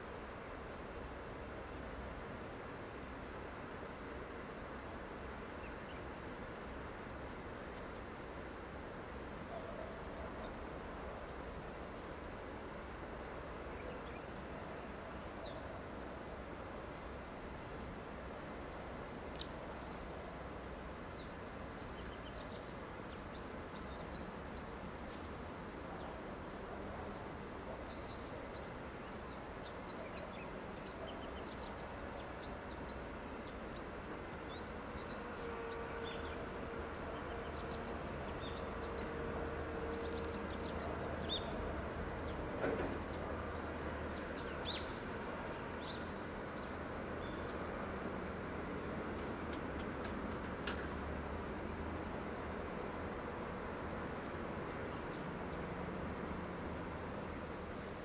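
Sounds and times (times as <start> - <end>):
outdoor background hum: 0.0 - 58.0.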